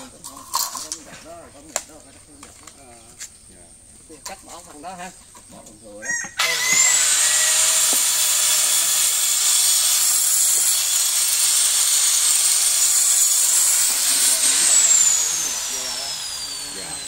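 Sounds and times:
angle grinder cutting tile: 0:06.4 - 0:17.0.

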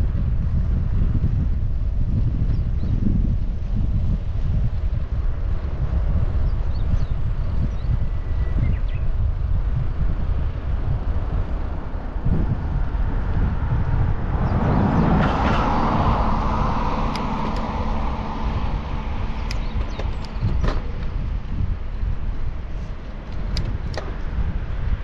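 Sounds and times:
wind rumbling on microphone: 0:00.0 - 0:25.0
motor vehicle passing: 0:10.3 - 0:25.0
sharp clicks and rattles: 0:17.0 - 0:18.2, 0:19.2 - 0:21.4, 0:23.2 - 0:24.2.

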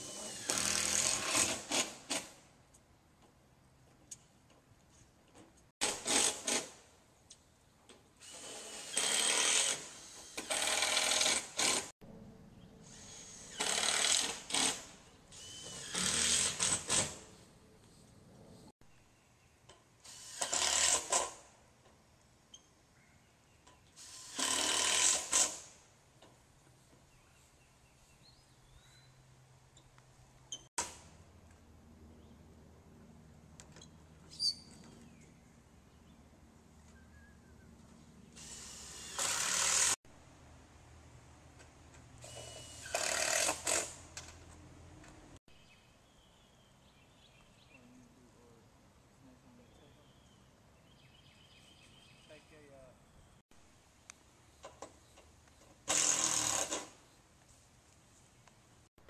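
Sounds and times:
cordless screw gun driving screws: 0:00.0 - 0:02.4, 0:05.8 - 0:06.8, 0:08.2 - 0:11.9, 0:12.9 - 0:17.3, 0:20.0 - 0:21.4, 0:24.0 - 0:25.8, 0:38.4 - 0:40.0, 0:42.2 - 0:44.4, 0:55.7 - 0:57.0
faint bird chirps: 0:33.8 - 0:35.5, 0:36.8 - 0:37.7, 0:49.2 - 0:53.4.

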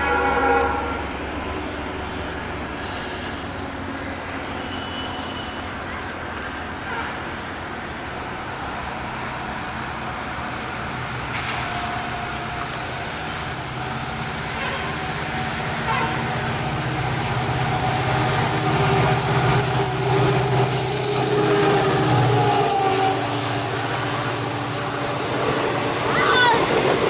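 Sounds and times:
rail noise: 0:00.0 - 0:27.0
diesel locomotive engine throb: 0:09.7 - 0:27.0.

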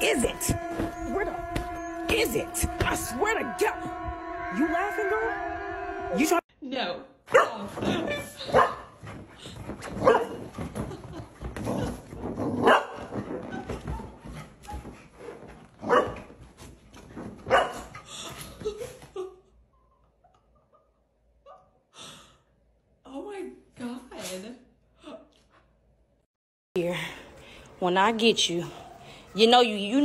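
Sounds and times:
puppy barking: 0:07.3 - 0:07.6, 0:08.5 - 0:08.9, 0:10.0 - 0:10.4, 0:12.6 - 0:13.0, 0:15.8 - 0:16.2, 0:17.5 - 0:17.9.

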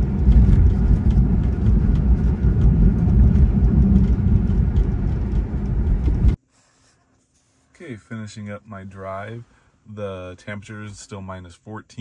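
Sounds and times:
tyre and road noise rumble: 0:00.0 - 0:06.4.

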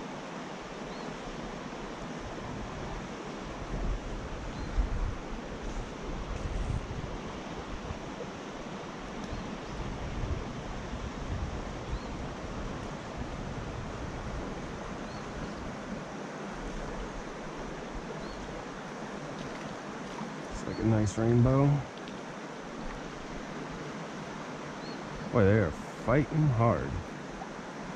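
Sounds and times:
creek running over riffles: 0:00.0 - 0:27.9
wind rumbling on microphone: 0:01.9 - 0:21.9.

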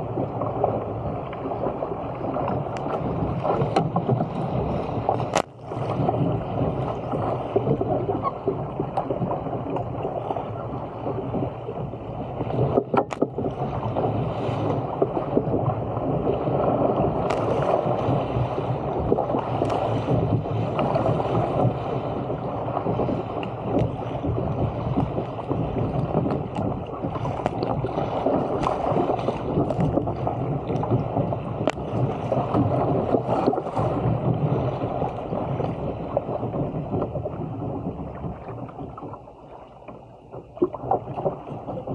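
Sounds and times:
water rushing along a hull: 0:00.0 - 0:41.9.

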